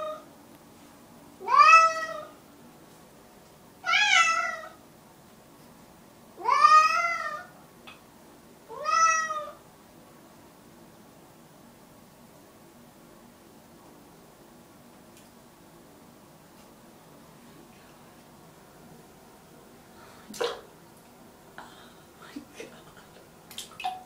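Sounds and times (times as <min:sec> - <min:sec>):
cat meowing: 0:01.4 - 0:02.3, 0:03.8 - 0:04.8, 0:06.4 - 0:07.5, 0:08.7 - 0:09.6.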